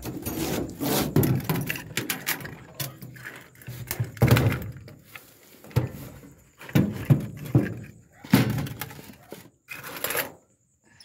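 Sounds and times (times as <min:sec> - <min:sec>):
metal tools clinking: 0:00.0 - 0:04.2.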